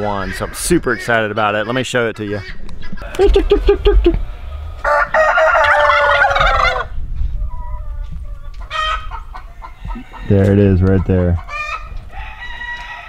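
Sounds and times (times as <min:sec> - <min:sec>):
rooster crowing: 0:03.0 - 0:06.9, 0:09.6 - 0:10.6, 0:11.5 - 0:13.0.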